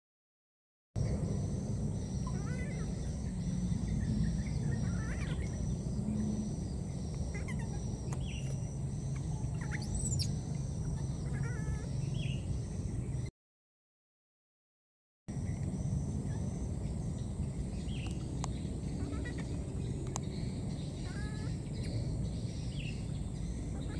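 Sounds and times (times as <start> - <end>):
low rumble: 1.0 - 13.3
short high chirping calls: 4.2 - 12.6.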